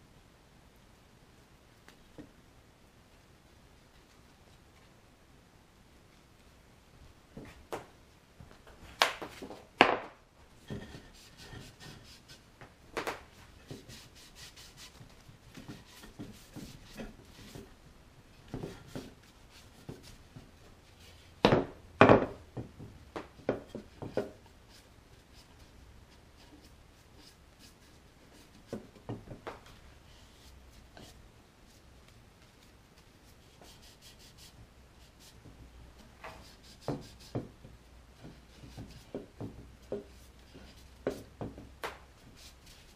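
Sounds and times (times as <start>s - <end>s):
cloth rag rubbing on wood: 13.6s - 17.7s, 32.5s - 35.4s.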